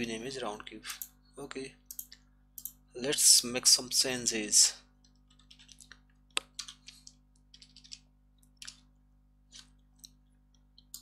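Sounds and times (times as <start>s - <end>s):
computer keyboard keystrokes: 5.3s - 8.8s.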